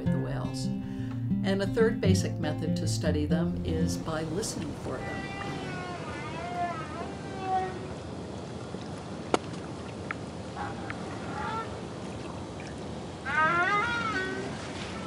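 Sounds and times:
whale calls underwater: 4.3s - 8.2s, 10.5s - 12.2s, 13.2s - 15.0s.

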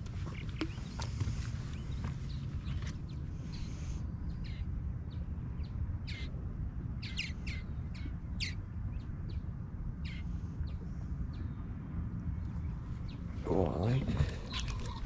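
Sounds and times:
steady low rumble: 0.0s - 15.0s
bird chirping: 12.4s - 15.0s.

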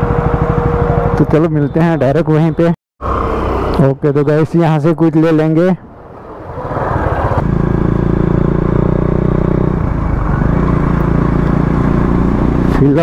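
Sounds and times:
motorcycle engine running: 0.0s - 3.8s, 7.4s - 13.0s.

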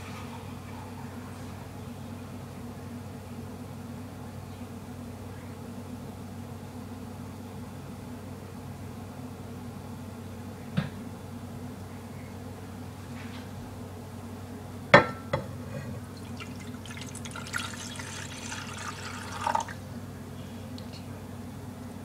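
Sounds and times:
water pouring into a pan: 16.1s - 19.8s.

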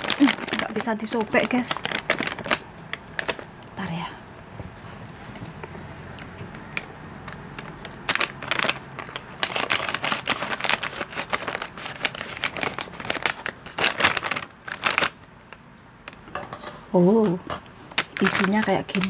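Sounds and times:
scissors cutting snack packet: 0.0s - 2.6s, 7.4s - 15.1s
wrapper crackling and rustling: 0.0s - 4.0s, 5.5s - 16.3s, 17.2s - 19.0s.

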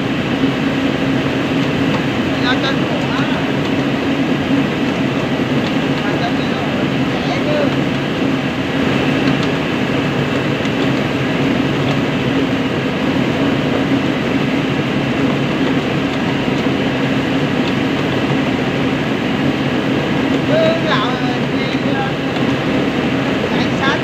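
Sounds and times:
rice mill motor hum: 0.0s - 24.0s.

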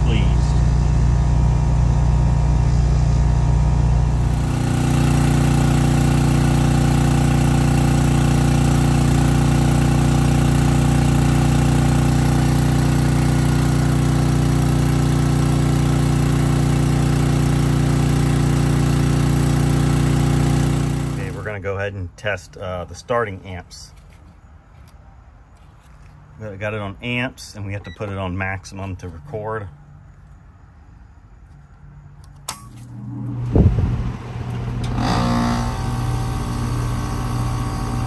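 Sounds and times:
portable generator running: 0.0s - 21.6s, 32.6s - 38.0s.

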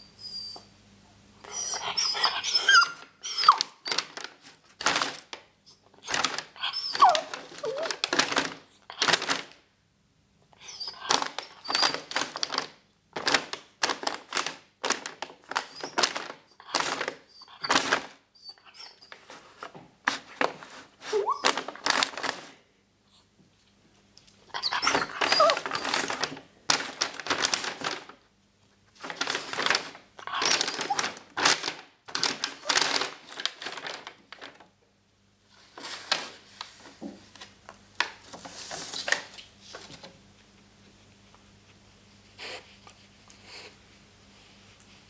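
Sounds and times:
puppy whining: 0.0s - 0.8s, 1.4s - 4.2s, 5.7s - 8.2s, 10.6s - 12.4s, 15.6s - 19.3s, 21.0s - 22.0s, 24.5s - 26.3s, 30.2s - 31.2s
paper bag rustling: 1.5s - 5.4s, 6.0s - 9.6s, 10.9s - 18.2s, 19.0s - 22.6s, 24.6s - 28.2s, 29.0s - 34.7s, 35.5s - 40.2s.

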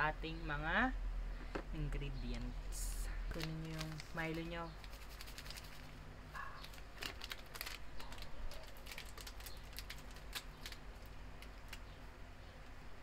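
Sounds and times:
plastic sachet crinkling: 3.3s - 12.0s.

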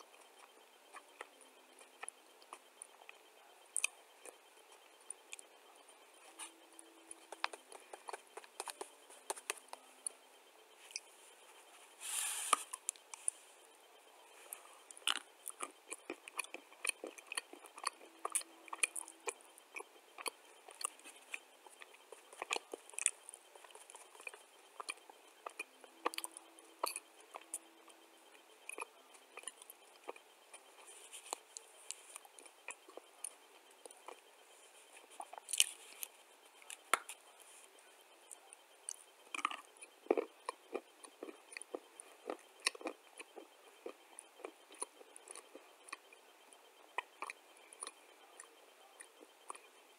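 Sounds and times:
person chewing crunchy clay: 14.4s - 28.0s, 28.6s - 34.2s, 35.0s - 37.2s, 38.9s - 46.1s, 46.9s - 49.6s.

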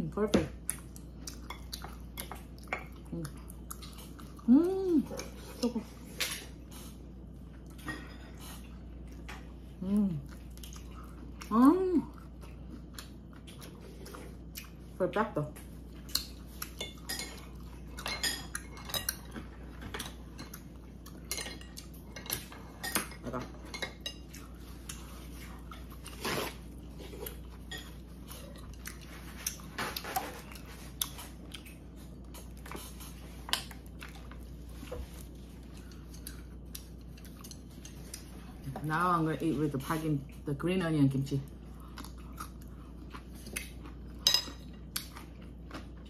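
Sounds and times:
chewing: 0.6s - 15.0s, 15.6s - 38.8s, 41.5s - 46.0s
chopsticks and spoon clinking bowls: 16.2s - 25.3s, 43.4s - 45.2s.

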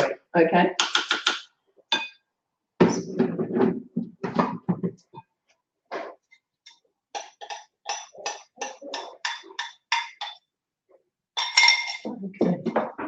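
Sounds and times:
metal utensil scraping metal bowl: 7.2s - 10.4s.

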